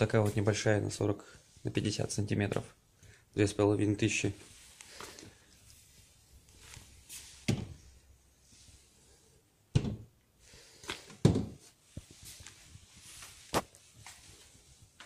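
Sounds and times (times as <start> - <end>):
hollow wooden thunks: 11.1 - 11.7.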